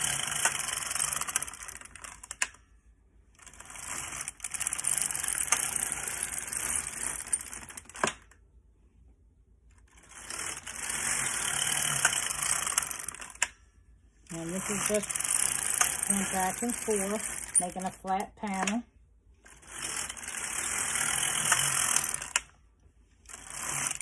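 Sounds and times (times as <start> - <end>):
knitting machine carriage clatter: 9.9 - 13.5, 14.3 - 18.8, 19.5 - 22.5, 23.3 - 24.0.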